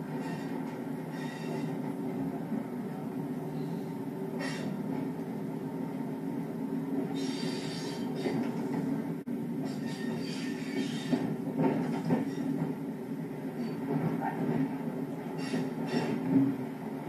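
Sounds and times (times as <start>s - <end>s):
railcar diesel engine drone: 0.0s - 17.0s
wheel squeals: 0.2s - 1.8s, 9.7s - 11.3s, 12.1s - 12.6s, 15.4s - 16.2s.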